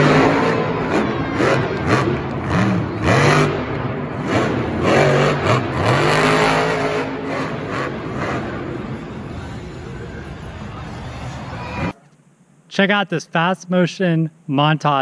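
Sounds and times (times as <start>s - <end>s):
monster truck engine revving: 0.0s - 11.9s.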